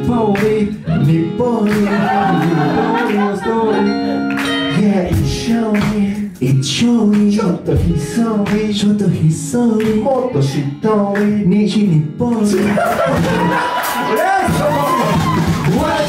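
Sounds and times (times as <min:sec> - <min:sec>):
men singing a cappella: 0:00.0 - 0:14.0
beatboxing percussion hits: 0:04.4 - 0:08.8.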